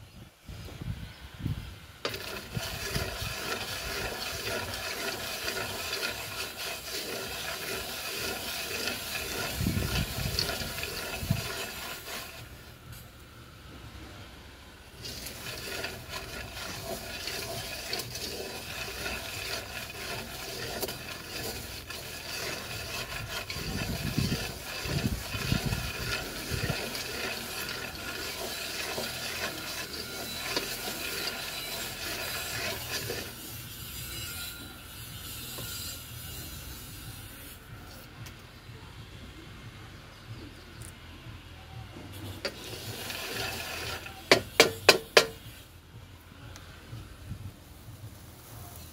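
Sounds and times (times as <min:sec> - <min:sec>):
beans rattling and scraping in pot: 0:02.0 - 0:12.6, 0:15.0 - 0:34.0, 0:42.2 - 0:45.6.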